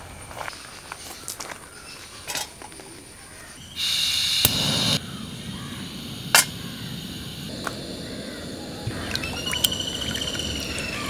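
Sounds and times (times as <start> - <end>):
gas burner hissing: 3.8 - 9.0
igniter click: 4.4 - 5.0
burner rushing: 4.4 - 9.0.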